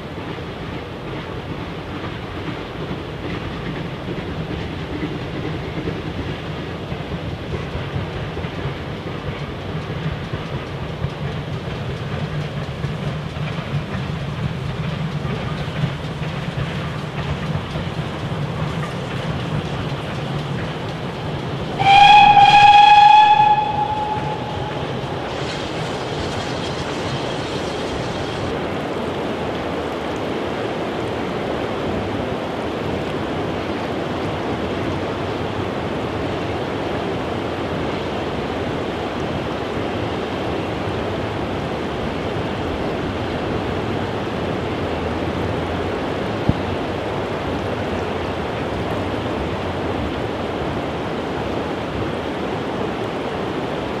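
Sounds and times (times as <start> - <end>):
train rushing noise: 0.0 - 54.0
steam locomotive whistle: 21.8 - 26.1.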